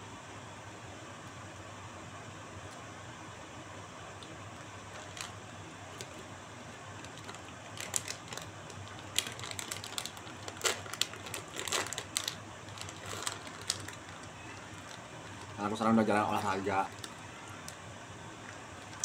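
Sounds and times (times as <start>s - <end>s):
sharp clicks and crackles: 7.0s - 15.6s, 16.9s - 17.8s.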